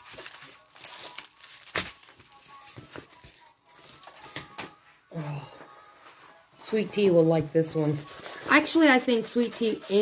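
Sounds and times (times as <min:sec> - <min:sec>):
plastic packaging crinkling: 0:00.0 - 0:04.6, 0:07.8 - 0:10.0.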